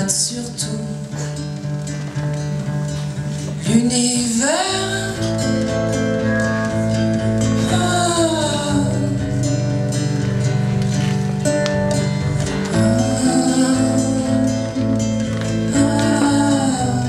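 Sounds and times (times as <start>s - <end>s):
man singing: 0.0s - 1.5s, 3.6s - 6.0s, 7.6s - 10.8s, 12.5s - 17.0s
strummed acoustic guitar: 0.0s - 17.0s.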